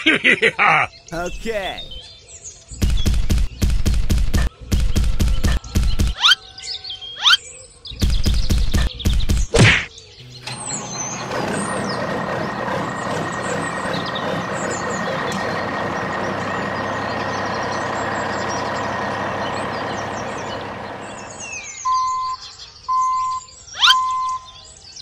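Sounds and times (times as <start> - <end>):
toy truck motor whining: 10.2 - 21.6
short electronic beeps: 21.9 - 24.5.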